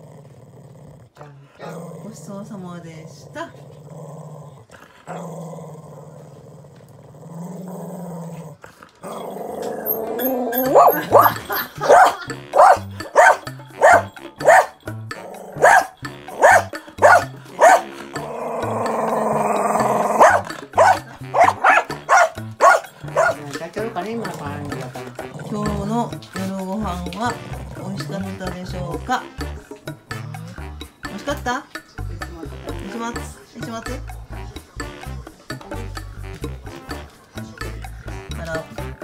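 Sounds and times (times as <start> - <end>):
dog growling: 0.0 - 23.6, 24.2 - 26.3, 27.4 - 28.3, 29.9 - 30.9
background music with bass: 9.1 - 39.0
dog barking: 10.2 - 14.8, 15.6 - 18.0, 20.0 - 23.4.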